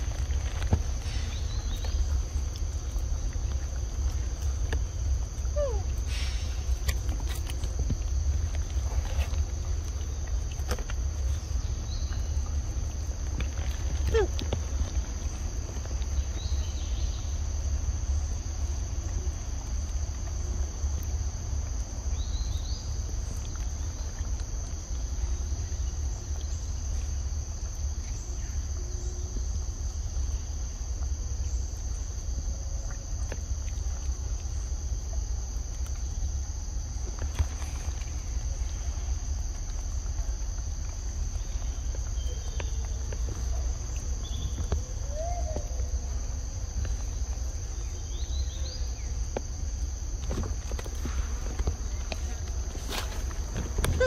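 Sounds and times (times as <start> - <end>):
constant low rumble: 0.0 - 54.0
insects droning: 0.0 - 54.0.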